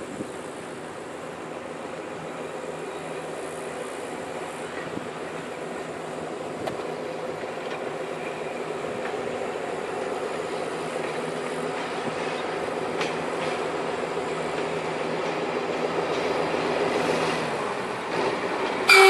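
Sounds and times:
railcar engine humming: 0:00.0 - 0:19.0.

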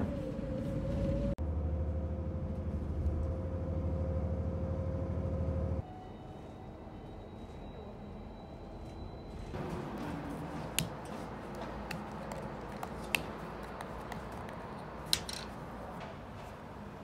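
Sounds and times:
bus cabin rumble: 0:00.0 - 0:13.6.

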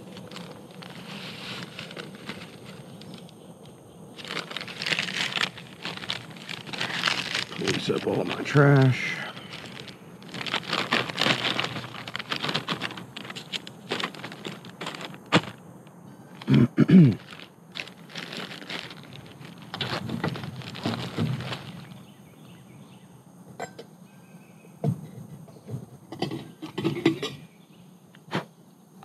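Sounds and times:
wrappers crinkling: 0:00.0 - 0:15.6, 0:16.3 - 0:22.2.

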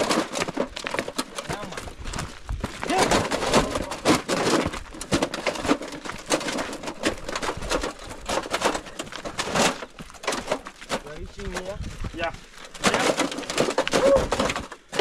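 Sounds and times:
footsteps crunching on loose rock: 0:00.0 - 0:15.0
wheelbarrow rattling over stones: 0:00.0 - 0:15.0.

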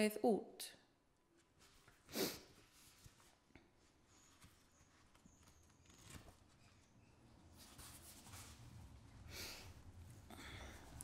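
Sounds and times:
book pages rustling: 0:01.4 - 0:09.2.

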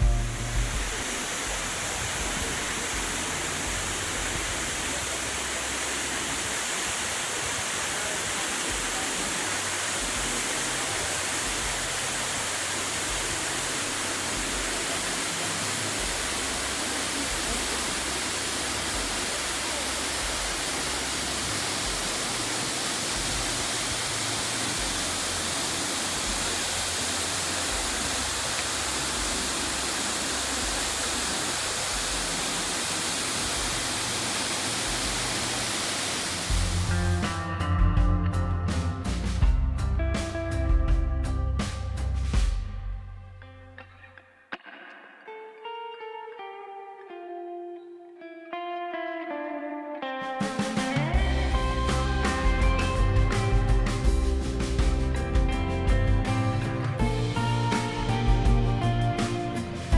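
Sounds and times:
waterfall rushing: 0:00.0 - 0:37.4, 0:50.6 - 0:59.9.

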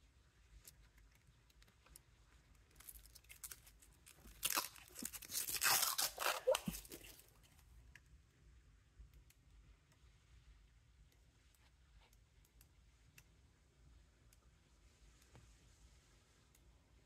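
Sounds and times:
plastic film peeling off: 0:02.8 - 0:07.2.

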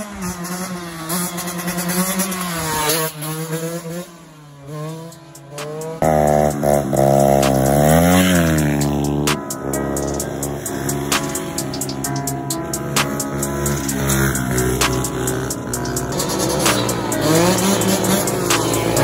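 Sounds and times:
pit bike engine revving: 0:00.0 - 0:19.0
motorcycle engine running: 0:00.4 - 0:19.0.

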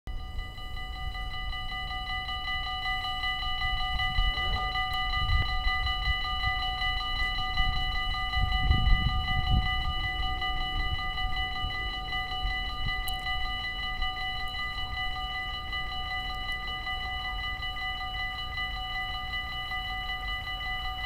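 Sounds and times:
level crossing bell ringing: 0:00.1 - 0:21.0
wind rumble on microphone: 0:03.6 - 0:14.2.

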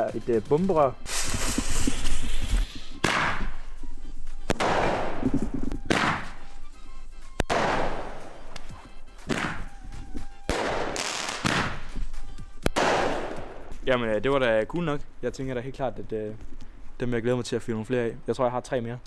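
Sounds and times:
firework bangs with hiss: 0:01.0 - 0:03.6, 0:04.5 - 0:06.4, 0:07.4 - 0:08.4, 0:09.3 - 0:09.7, 0:10.5 - 0:12.0, 0:12.7 - 0:13.8.

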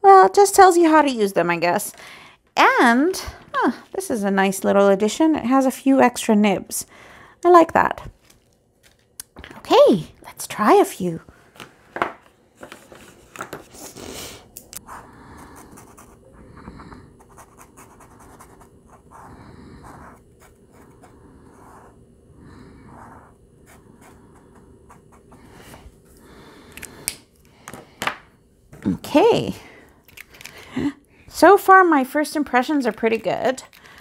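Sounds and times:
pen tips scratching on paper: 0:17.2 - 0:21.9.

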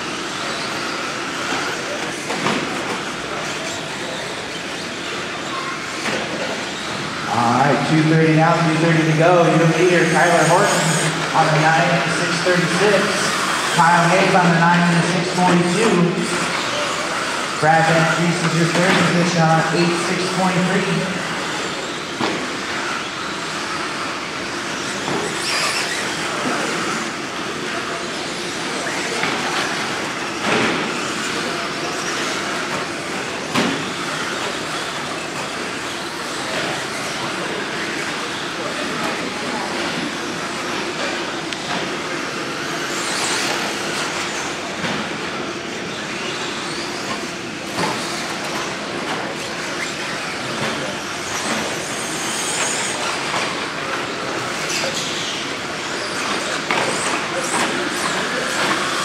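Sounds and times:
toy car motors and tyres on dirt: 0:21.2 - 0:59.0.

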